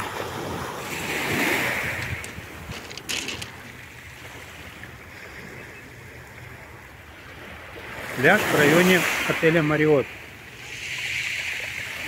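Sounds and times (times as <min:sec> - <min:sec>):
waves washing on pebbles: 0:00.0 - 0:04.8, 0:07.6 - 0:12.0.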